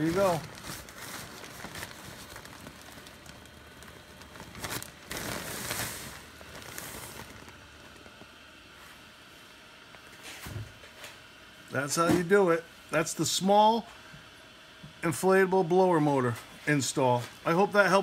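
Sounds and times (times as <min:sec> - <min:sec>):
fabric crinkling and rustling: 0:00.0 - 0:08.4
blower fan running: 0:00.0 - 0:18.0.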